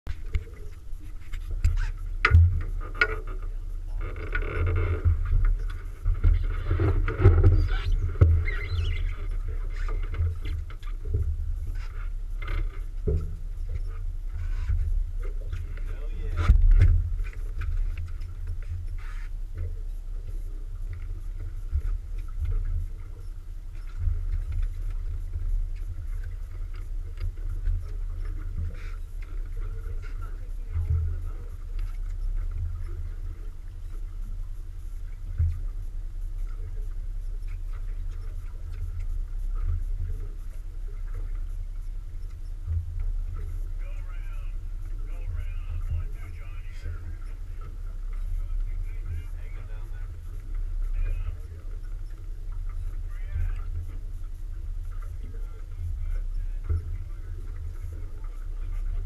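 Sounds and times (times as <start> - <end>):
outboard motor rumbling: 0.0 - 59.0
wind buffeting microphone: 0.1 - 59.0
knocks on boat deck: 2.2 - 2.7.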